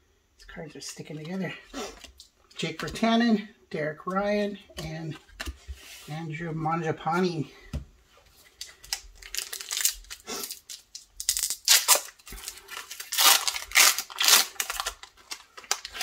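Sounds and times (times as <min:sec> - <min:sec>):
foil wrapper crinkling and tearing: 0:08.6 - 0:16.0.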